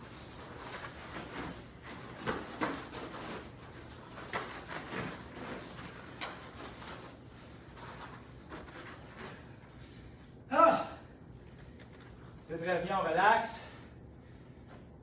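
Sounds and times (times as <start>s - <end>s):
bare feet on foam mats: 0.0s - 12.5s.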